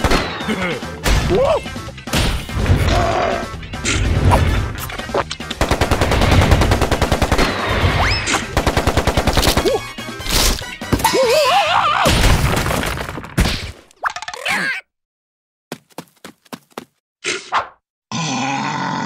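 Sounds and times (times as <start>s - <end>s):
warbling cartoon creature cry: 11.1s - 12.1s.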